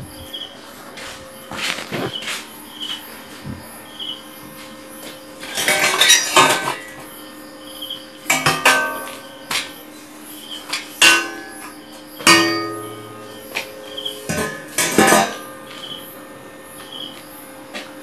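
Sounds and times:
metal chair frames clanking: 5.4s - 6.9s, 11.0s - 11.7s, 12.3s - 15.8s.

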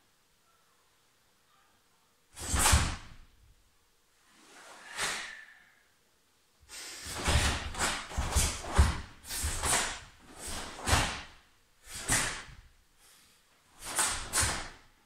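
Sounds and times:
fabric snapping and swishing: 2.4s - 3.2s, 7.0s - 12.7s, 13.8s - 14.9s
bare feet thudding on wooden floor: 7.1s - 12.7s.

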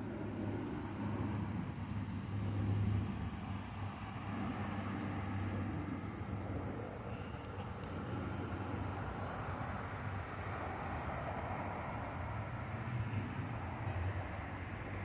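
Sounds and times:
motor traffic rumble: 0.0s - 15.0s.

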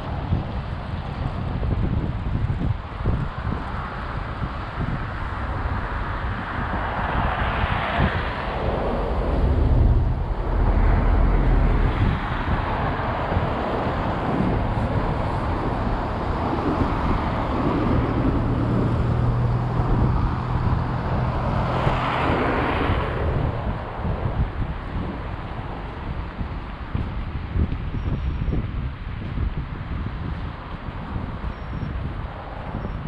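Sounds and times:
low engine hum: 0.0s - 33.0s
cars driving past: 3.1s - 27.0s.

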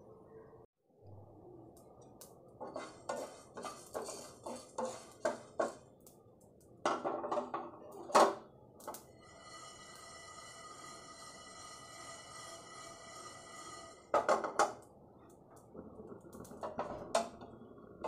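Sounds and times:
spatula scraping frying pan: 2.6s - 5.9s, 9.1s - 14.7s.

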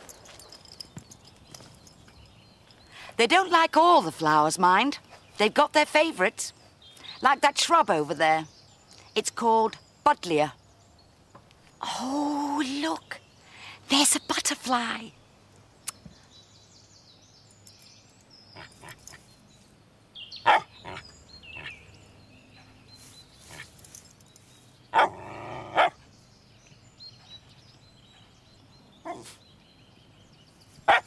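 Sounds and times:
dog barking: 20.4s - 21.0s, 24.9s - 25.2s, 25.8s - 26.0s.

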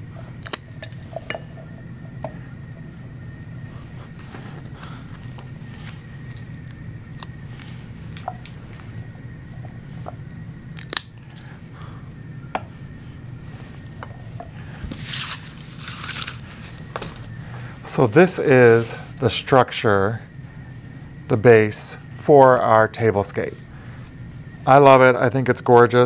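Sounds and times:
low room hum: 0.0s - 26.0s
papery rustle: 14.8s - 17.3s.

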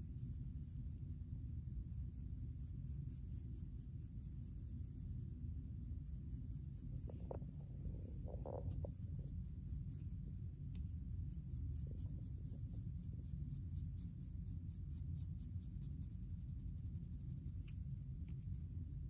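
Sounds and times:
low rumble: 5.5s - 13.6s.

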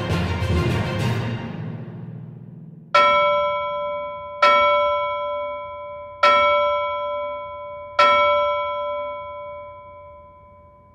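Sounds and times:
bell chime ringing: 3.0s - 10.9s.

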